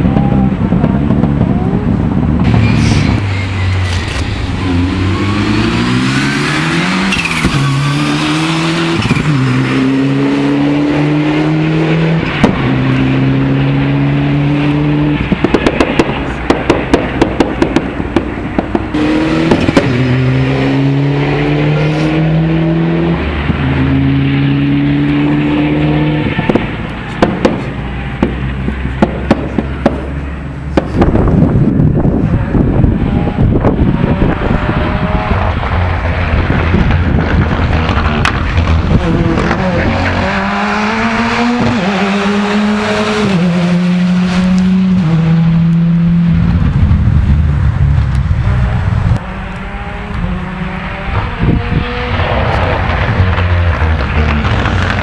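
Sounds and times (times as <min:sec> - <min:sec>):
exhaust pops and crackles: 0:00.0 - 0:03.2, 0:15.2 - 0:20.1, 0:26.3 - 0:40.2, 0:45.7 - 0:50.3, 0:51.1 - 0:55.0
rally car engine revving: 0:00.0 - 0:55.0.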